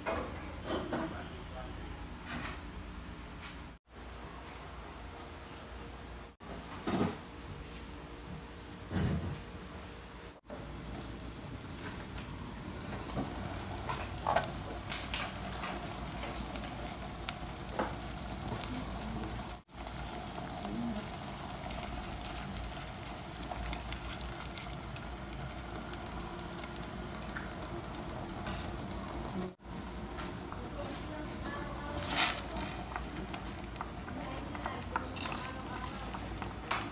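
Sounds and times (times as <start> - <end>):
water boiling in a pot: 10.4 - 36.9.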